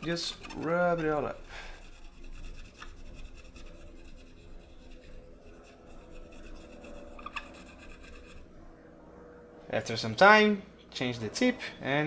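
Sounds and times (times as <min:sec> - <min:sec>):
swab rubbing circuit board: 0:00.0 - 0:08.4.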